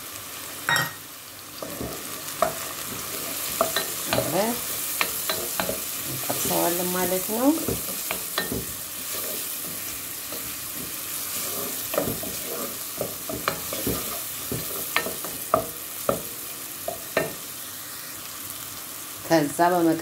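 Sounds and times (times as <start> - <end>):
onions sizzling in oil: 0.0 - 20.0
wooden spoon scraping pot: 1.6 - 15.7.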